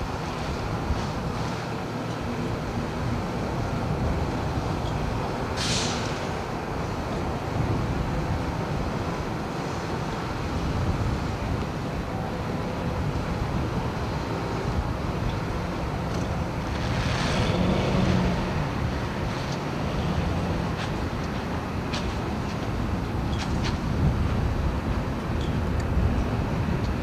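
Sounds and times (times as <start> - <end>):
heavy vehicle engines rumbling: 0.0 - 27.0
wind noise on microphone: 0.0 - 27.0
brief hiss: 5.6 - 6.3.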